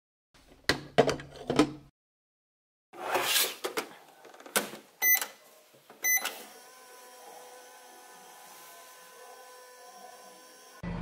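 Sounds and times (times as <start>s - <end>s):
short electronic beeps: 6.0s - 6.3s.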